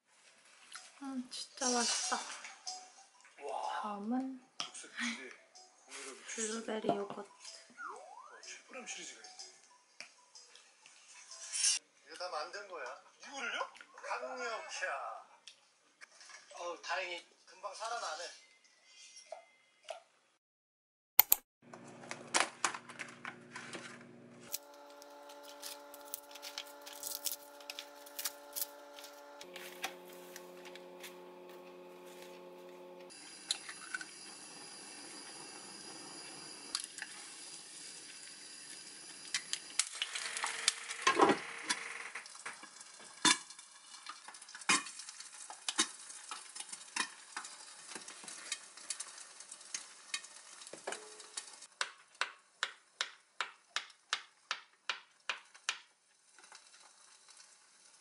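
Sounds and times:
pan crackle and scrape: 0:10.9 - 0:11.8, 0:21.9 - 0:41.2, 0:42.2 - 0:51.8, 0:56.1 - 0:58.0
egg sizzling in pan: 0:23.4 - 0:51.8, 0:55.4 - 0:58.0
plastic bag rustling: 0:24.6 - 0:32.9.

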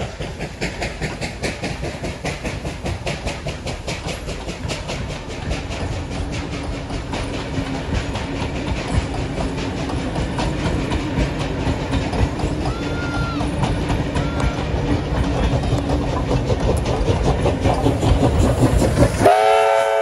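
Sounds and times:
low train hum: 0:00.0 - 0:20.0
train wheels clicking over rail joints: 0:00.0 - 0:20.0.

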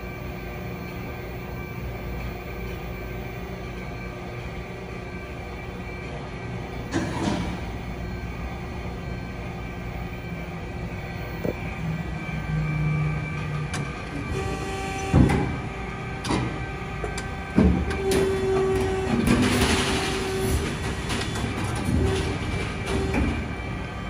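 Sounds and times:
machine hum: 0:00.0 - 0:24.0
machine whine: 0:00.0 - 0:24.0
sharp machine clunks: 0:17.6 - 0:23.4.

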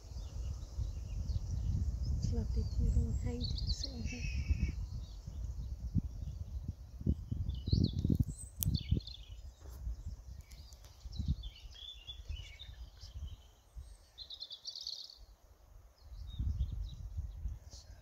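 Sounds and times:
songbirds chirping: 0:00.0 - 0:18.0
bird trill: 0:03.2 - 0:05.1.

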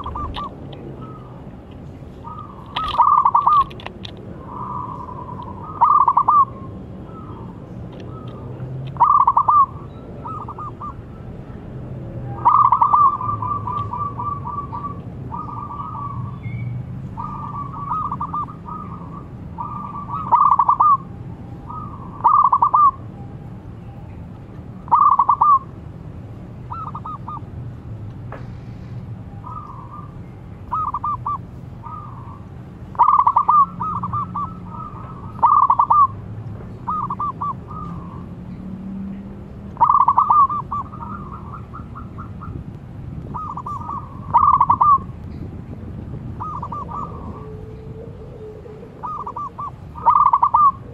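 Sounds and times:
doves cooing: 0:00.0 - 0:01.6, 0:02.2 - 0:11.4, 0:12.2 - 0:16.4, 0:17.0 - 0:21.1, 0:21.7 - 0:23.0, 0:24.9 - 0:25.7, 0:26.7 - 0:27.5, 0:29.4 - 0:38.4, 0:39.8 - 0:42.6, 0:43.2 - 0:45.2, 0:46.3 - 0:50.9.

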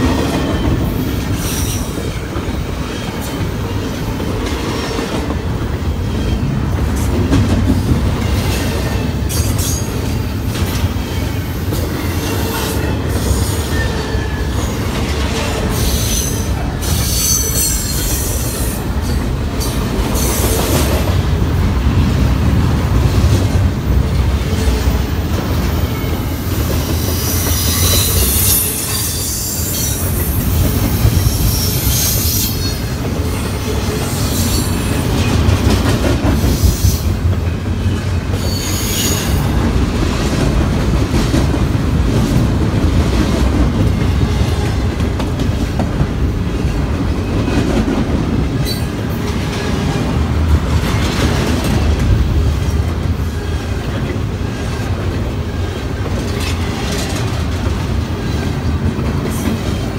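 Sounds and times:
train wheels rumbling on rail: 0:00.0 - 0:59.9
high-pitched wheel squeals: 0:15.8 - 0:18.4, 0:27.0 - 0:30.6, 0:38.4 - 0:39.4.

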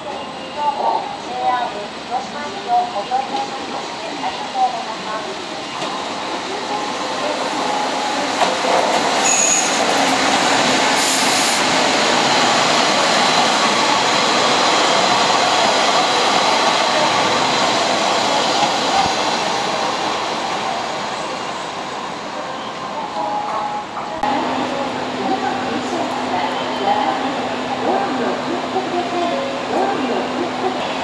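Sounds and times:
train wheel and rail noise: 0:00.0 - 0:31.0
wheel squeals: 0:09.2 - 0:10.1.

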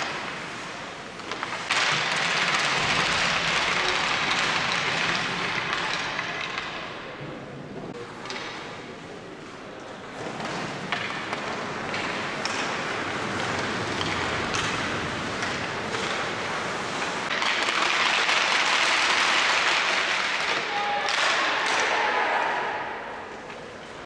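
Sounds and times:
skates scraping ice: 0:00.0 - 0:07.0, 0:07.9 - 0:24.0
hockey stick taps: 0:01.1 - 0:07.0, 0:10.2 - 0:22.0.

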